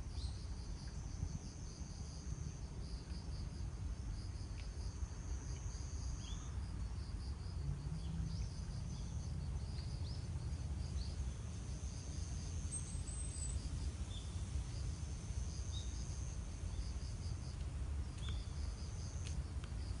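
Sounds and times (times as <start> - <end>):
low outdoor rumble: 0.0 - 20.0
insects trilling: 4.6 - 20.0
short insect chirps: 18.1 - 20.0.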